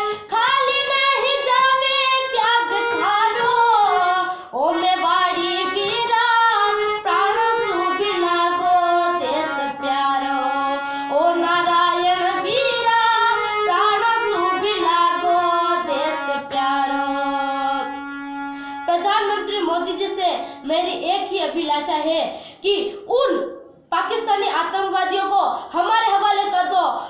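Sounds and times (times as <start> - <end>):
girl singing: 0.0 - 18.1, 18.8 - 27.0.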